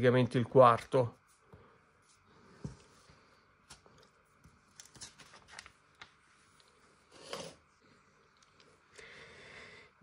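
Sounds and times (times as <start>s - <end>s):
soft brush on paper: 0.9s - 3.5s.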